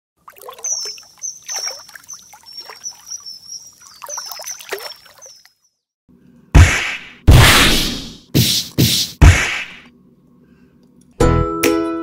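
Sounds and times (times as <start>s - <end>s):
water-drop plinks: 0.3s - 5.6s
loud whack: 6.6s - 9.9s.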